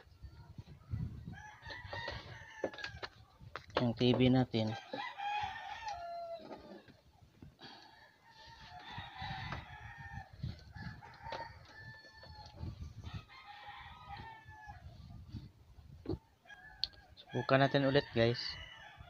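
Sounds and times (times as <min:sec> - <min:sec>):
rooster crowing: 0:01.3 - 0:03.1, 0:04.7 - 0:06.6, 0:07.6 - 0:14.9.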